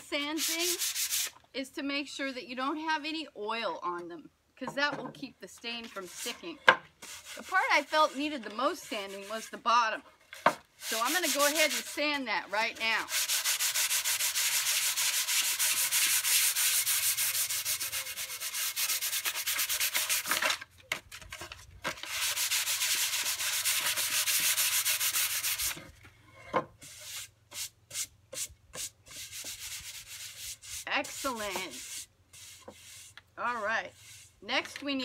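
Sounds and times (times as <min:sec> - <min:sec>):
sandpaper rubbing on wood: 0:00.2 - 0:01.3, 0:07.0 - 0:09.6, 0:10.8 - 0:12.2, 0:12.9 - 0:20.3, 0:22.0 - 0:25.8, 0:26.8 - 0:34.4.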